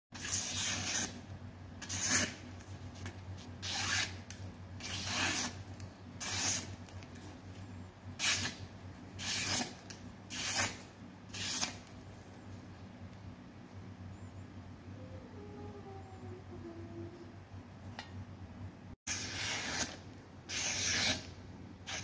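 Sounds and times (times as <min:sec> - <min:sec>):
knife slicing paper: 0:01.8 - 0:02.4, 0:09.2 - 0:11.8, 0:19.1 - 0:22.0.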